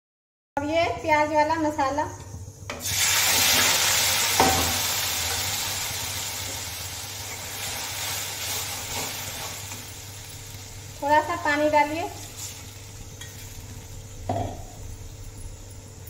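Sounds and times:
paste sizzling in hot oil: 0:02.8 - 0:16.0.

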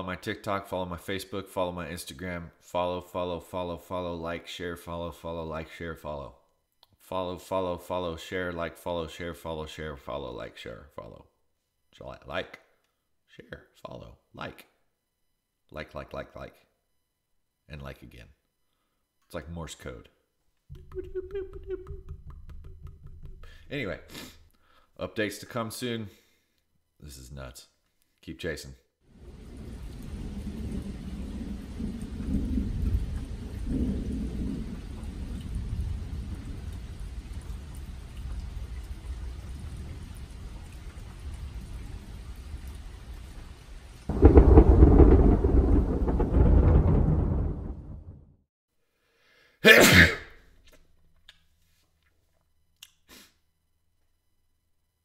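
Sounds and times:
person sneezing loudly: 0:24.0 - 0:24.4, 0:49.6 - 0:50.4
steady rain: 0:29.1 - 0:48.2
low rolling thunder: 0:29.2 - 0:43.2, 0:44.1 - 0:48.4.

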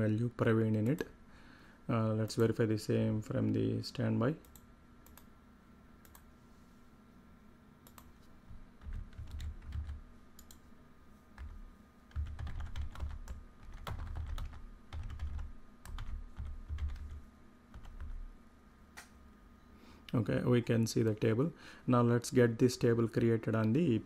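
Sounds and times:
faint steady hum: 0:00.0 - 0:24.0
typing on computer keyboard: 0:08.8 - 0:10.6, 0:12.1 - 0:17.2.

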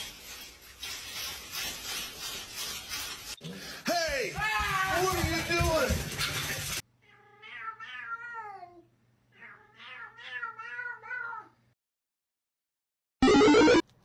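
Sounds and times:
cat meowing: 0:07.0 - 0:11.5.

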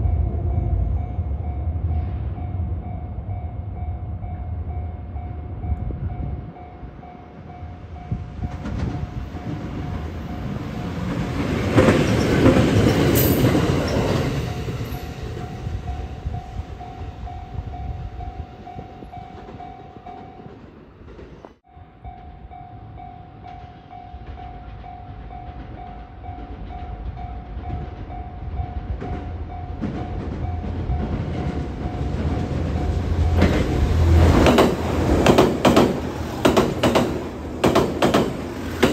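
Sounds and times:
train rumbling: 0:00.0 - 0:38.9
level crossing warning bell: 0:02.4 - 0:11.2, 0:12.2 - 0:20.6.

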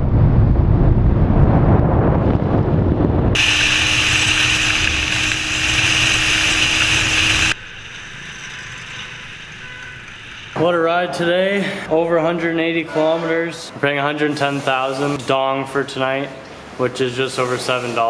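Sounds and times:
wind rushing over microphone: 0:00.0 - 0:07.6
steady hum: 0:00.4 - 0:12.0
road noise: 0:03.0 - 0:15.0
motorbike engine: 0:03.4 - 0:10.2.

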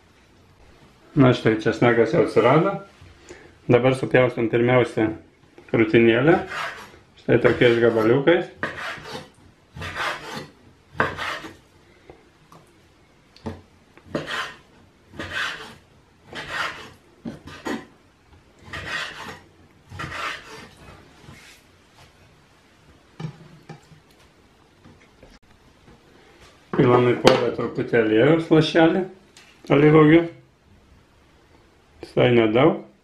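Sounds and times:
knife slicing meat on cutting board: 0:06.4 - 0:11.6, 0:14.1 - 0:17.9.

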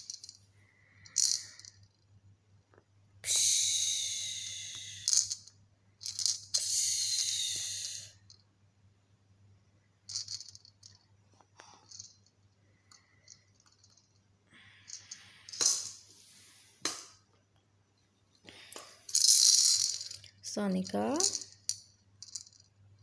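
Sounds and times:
plastic baby rattle shaking: 0:00.0 - 0:00.4, 0:01.0 - 0:02.0, 0:05.0 - 0:07.3, 0:10.1 - 0:11.0, 0:11.9 - 0:12.2, 0:19.1 - 0:22.7.

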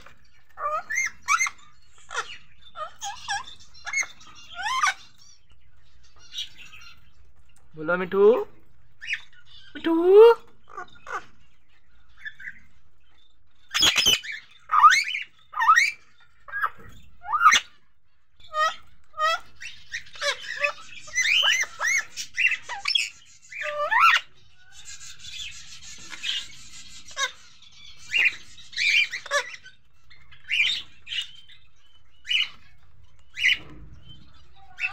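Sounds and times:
parakeet squawking and chirping: 0:00.0 - 0:34.9.

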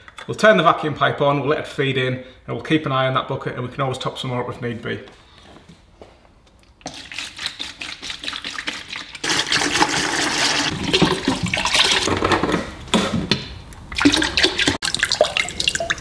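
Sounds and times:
liquid pouring into bucket: 0:06.8 - 0:12.2, 0:13.9 - 0:16.0.

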